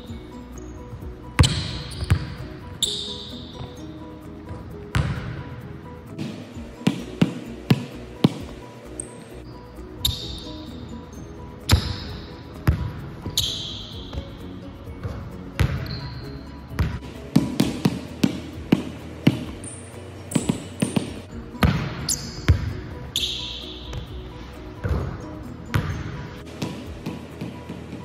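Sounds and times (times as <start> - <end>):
background music: 0.0 - 28.0
shoe squeaks: 0.0 - 28.0
basketball bouncing on hardwood: 1.4 - 3.0, 4.5 - 5.4, 6.2 - 8.6, 11.7 - 14.3, 15.0 - 16.0, 16.7 - 19.6, 20.4 - 22.7.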